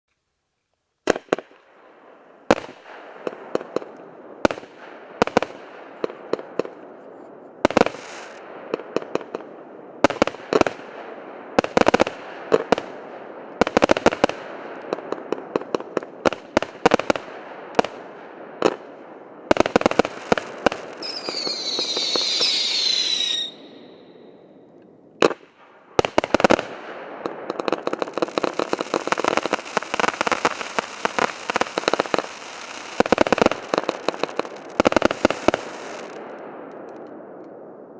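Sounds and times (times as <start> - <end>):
firework crackling: 7.7 - 37.0
falling firework whistles: 19.9 - 24.6.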